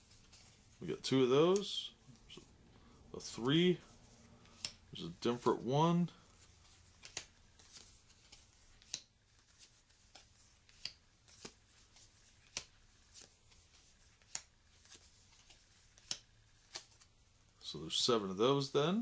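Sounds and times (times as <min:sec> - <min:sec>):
playing cards clicking on pile: 0:06.9 - 0:17.1.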